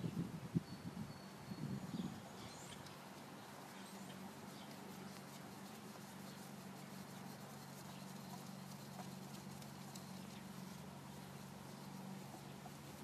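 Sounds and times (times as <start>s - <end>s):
steady low hum: 0.0s - 13.0s
oil filter rubbing and squeaks: 2.6s - 13.0s.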